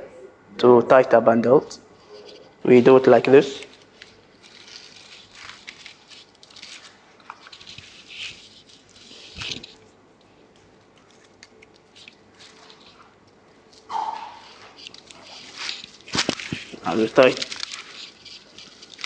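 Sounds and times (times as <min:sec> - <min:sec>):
rope rasping against dry reeds: 0:04.4 - 0:09.8, 0:14.4 - 0:19.0.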